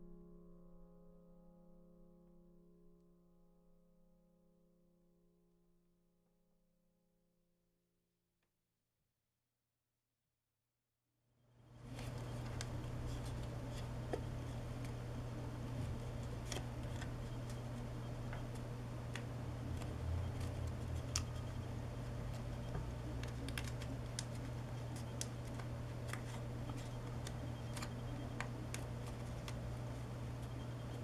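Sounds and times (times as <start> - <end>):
steady low hum: 11.6 - 31.0
paper crinkling: 11.8 - 31.0.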